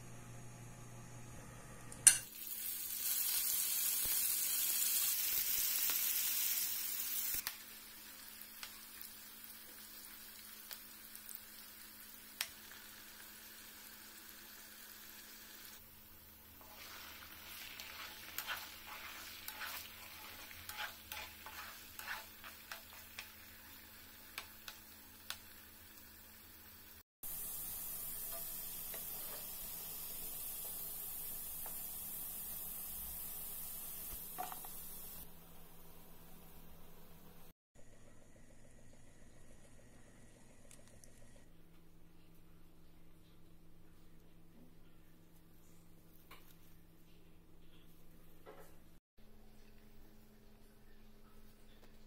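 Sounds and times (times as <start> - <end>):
crackling and popping oil: 2.0 - 14.7, 16.5 - 33.1, 33.9 - 35.3
meat sizzling in hot oil: 2.1 - 15.8, 16.5 - 35.2.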